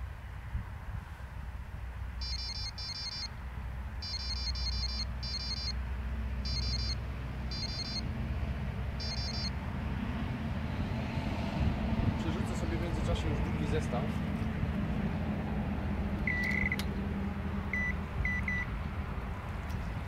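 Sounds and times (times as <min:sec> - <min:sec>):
bite alarm high beeps: 0:02.2 - 0:03.3, 0:04.0 - 0:05.8, 0:06.4 - 0:08.0, 0:09.0 - 0:09.5, 0:16.3 - 0:16.8, 0:17.8 - 0:18.7.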